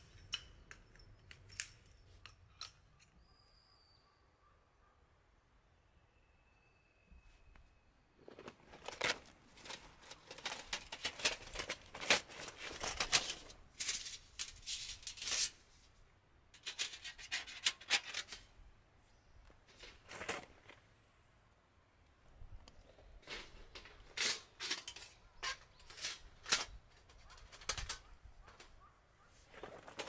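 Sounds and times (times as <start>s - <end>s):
metal plates rustling and scraping: 8.2s - 15.7s, 16.6s - 18.5s, 23.2s - 28.8s.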